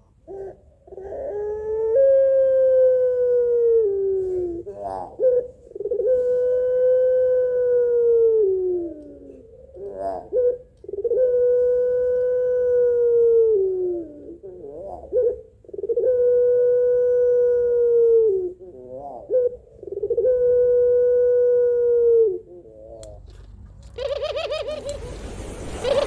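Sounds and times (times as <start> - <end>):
dove cooing: 0.0 - 23.2, 24.0 - 25.1, 25.8 - 26.0.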